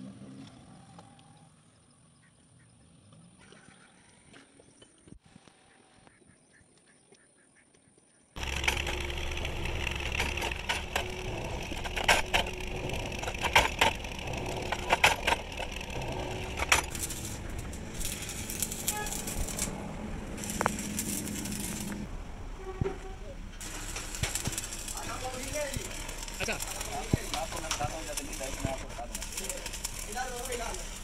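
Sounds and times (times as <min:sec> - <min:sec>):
sharp knocks and clatter: 0:08.4 - 0:22.1, 0:23.6 - 0:31.0
workshop machinery din: 0:08.4 - 0:31.0.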